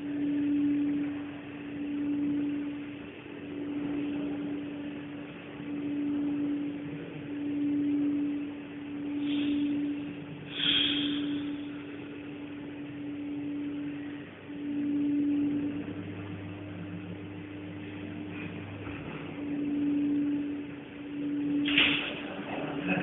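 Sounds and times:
steady hum: 0.0s - 23.0s
short hissing sounds: 10.5s - 11.5s.

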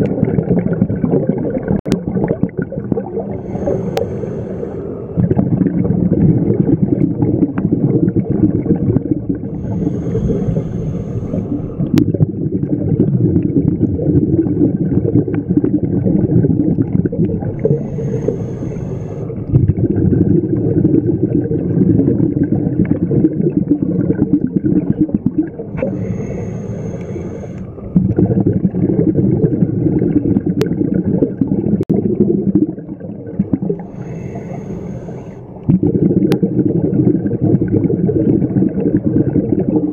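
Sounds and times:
underwater bubble gurgles: 0.0s - 39.9s
regulator inhalation hiss: 3.4s - 5.0s, 9.6s - 11.8s, 17.7s - 19.3s, 25.8s - 27.7s, 33.9s - 35.4s.

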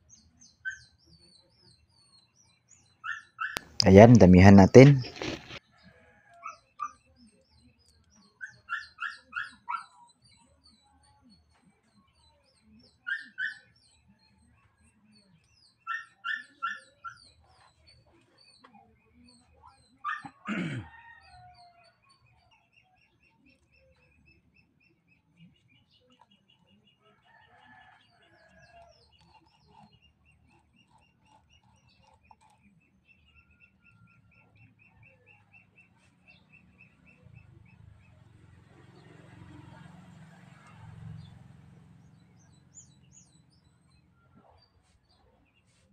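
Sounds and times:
small birds chirping: 0.0s - 45.9s
dog yapping: 8.4s - 10.0s, 15.9s - 17.2s, 20.0s - 20.5s.

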